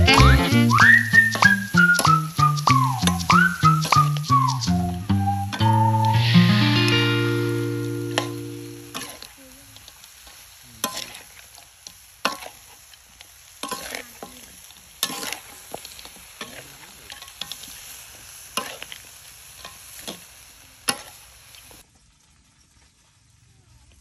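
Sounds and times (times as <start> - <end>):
food sizzling: 0.0 - 23.5
metal spatula scraping a wok: 8.2 - 12.8, 13.5 - 20.3.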